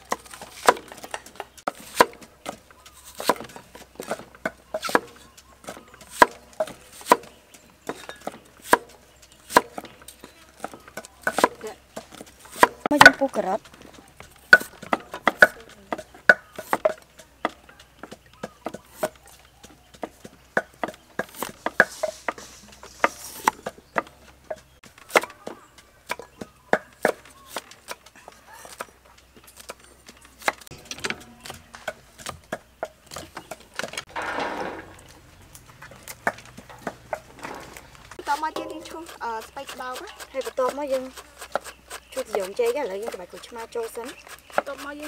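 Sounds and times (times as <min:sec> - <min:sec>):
cleaver chopping on wood: 0:00.0 - 0:29.0, 0:30.4 - 0:35.0, 0:36.0 - 0:45.0
rustling clatter: 0:27.7 - 0:40.4.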